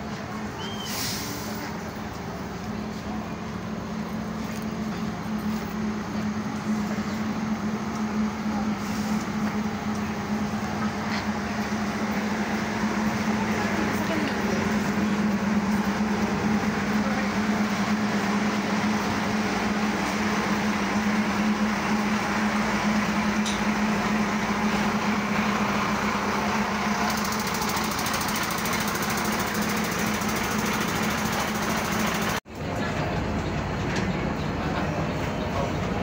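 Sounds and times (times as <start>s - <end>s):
murmur of people: 0.0s - 20.6s, 32.5s - 36.0s
bus engine idling: 0.0s - 36.0s.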